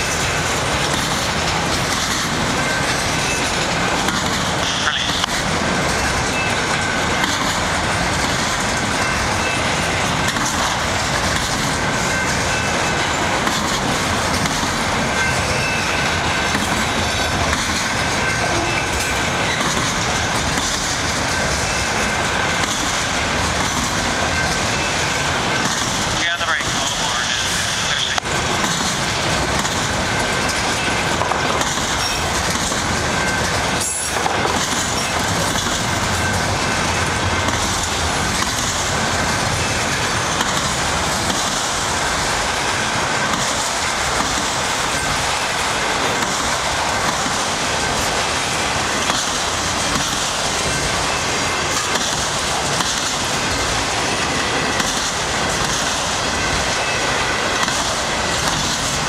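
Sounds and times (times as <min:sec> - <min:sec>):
freight train wheels on rails: 0:00.0 - 0:59.0.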